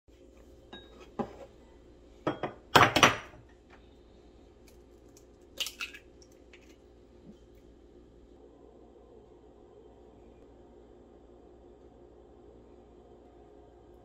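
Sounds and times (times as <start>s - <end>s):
eggshell crackling: 4.6s - 7.1s.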